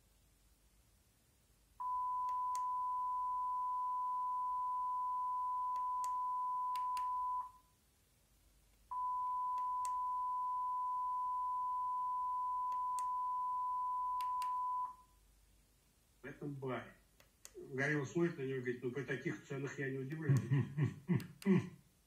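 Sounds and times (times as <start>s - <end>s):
steady test tone from a tv: 1.8s - 7.6s.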